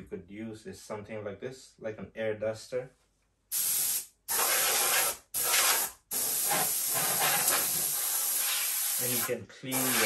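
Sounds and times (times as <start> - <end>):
air duster blasts of hissing air: 3.5 - 10.0.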